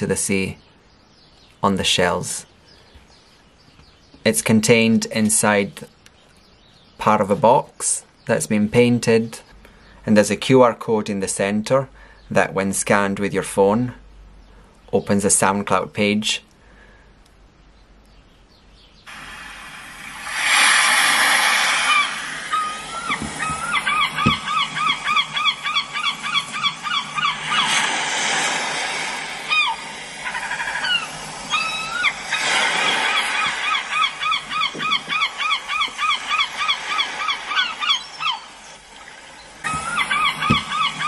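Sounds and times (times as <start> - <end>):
seabirds calling: 0.0 - 41.0
waves washing in: 19.1 - 41.0.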